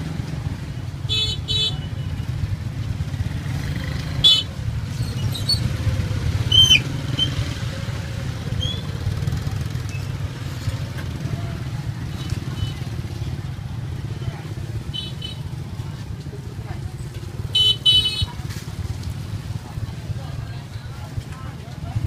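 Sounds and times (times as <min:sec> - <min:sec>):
motorbike engine rumbling: 0:00.0 - 0:22.0
horn toot: 0:04.1 - 0:04.6.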